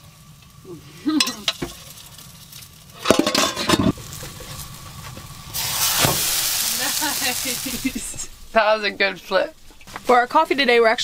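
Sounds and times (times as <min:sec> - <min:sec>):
batter sizzling: 0:00.0 - 0:11.0.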